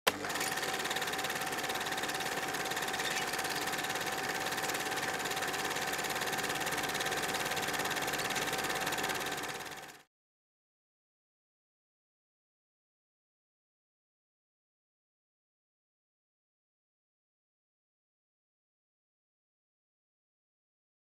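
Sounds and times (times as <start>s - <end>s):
film projector clatter: 0.1s - 10.1s.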